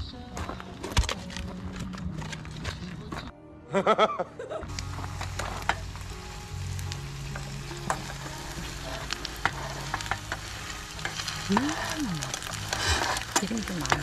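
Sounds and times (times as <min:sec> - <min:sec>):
food sizzling in oil: 0:04.7 - 0:14.0.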